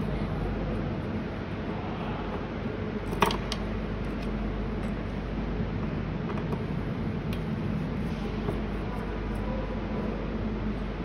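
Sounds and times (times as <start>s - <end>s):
steady background noise: 0.0s - 11.0s.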